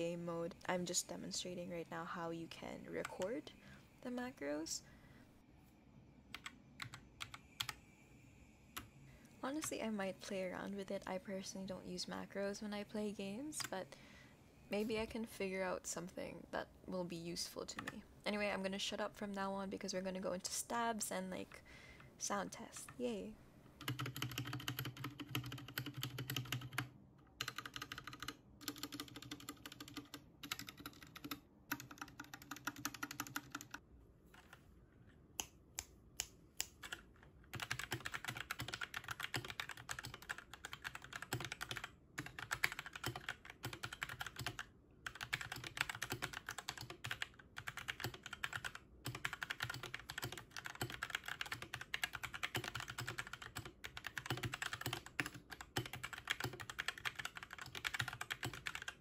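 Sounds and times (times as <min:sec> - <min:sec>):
fast typing on keyboard: 0:06.4 - 0:07.8, 0:23.8 - 0:33.8, 0:36.7 - 0:59.0
mechanical keyboard keys pressed: 0:23.8 - 0:26.8, 0:36.7 - 0:59.0.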